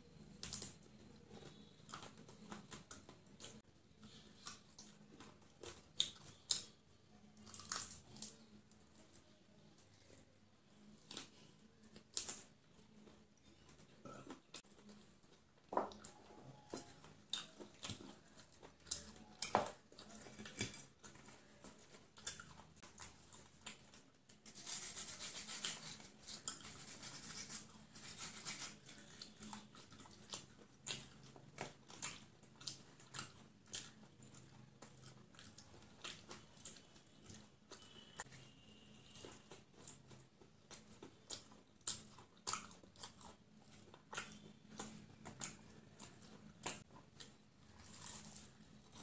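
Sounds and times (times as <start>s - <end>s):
crispy food crunching: 0.2s - 49.0s
wet chewing: 10.8s - 49.0s.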